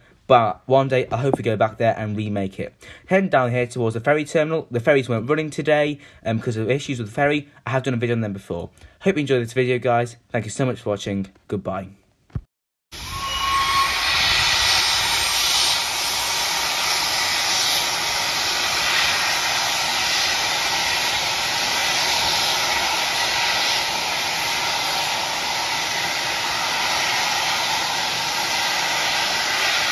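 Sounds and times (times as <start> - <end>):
steam hissing: 13.0 - 29.9.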